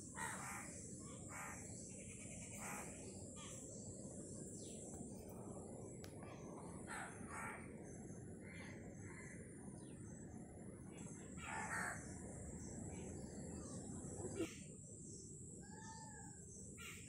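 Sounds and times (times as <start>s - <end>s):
crow cawing: 6.9s - 7.6s, 11.4s - 12.0s.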